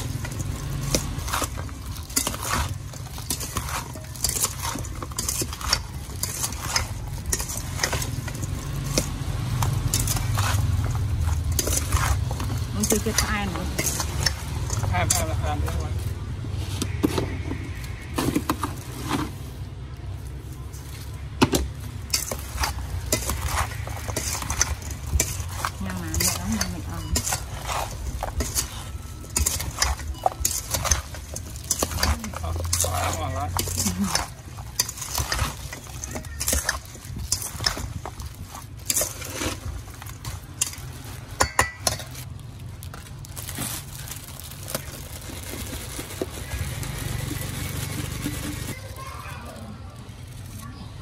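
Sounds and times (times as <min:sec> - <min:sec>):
metal spoon clinking in steel bowl: 0:00.0 - 0:15.8, 0:22.1 - 0:42.3
plastic bag rustling: 0:00.0 - 0:51.0
spoon clinking in steel bowl: 0:22.1 - 0:38.0, 0:41.4 - 0:42.2.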